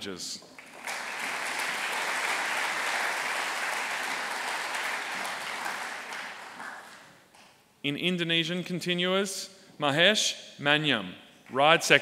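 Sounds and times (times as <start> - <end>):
audience applauding: 0.5 - 7.2.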